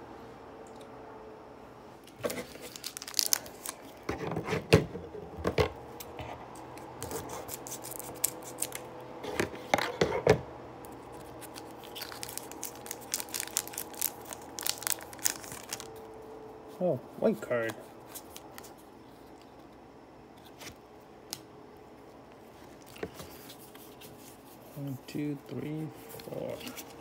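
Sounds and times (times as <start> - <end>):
foil wrapper crackling: 2.2 - 4.1, 7.4 - 8.9, 11.1 - 16.1
scissors snipping foil wrapper: 2.4 - 4.0, 7.3 - 8.8, 11.2 - 15.9.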